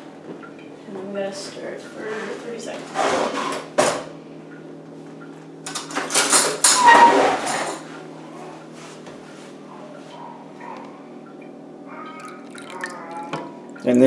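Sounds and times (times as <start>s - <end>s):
dishes clattering in sink: 5.7s - 7.9s.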